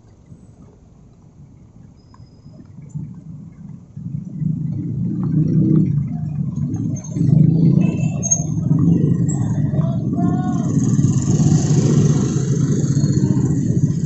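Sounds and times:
cars passing: 0:02.6 - 0:14.0
motorcycles passing: 0:03.0 - 0:14.0.

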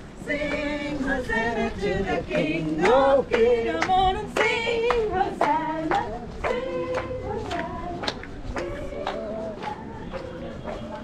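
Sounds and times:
voices singing together: 0:00.0 - 0:11.0.

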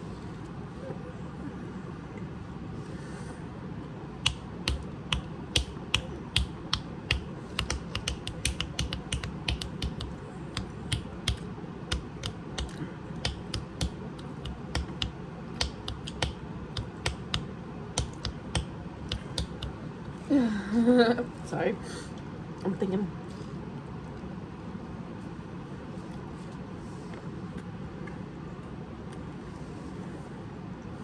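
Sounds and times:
fingers snapping: 0:04.2 - 0:19.8.

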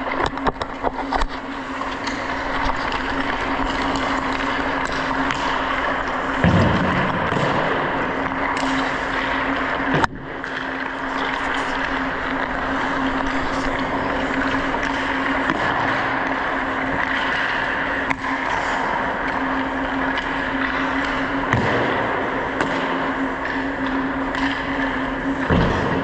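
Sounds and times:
low hum: 0:00.0 - 0:26.0
ice skate blades scraping: 0:10.9 - 0:16.0.

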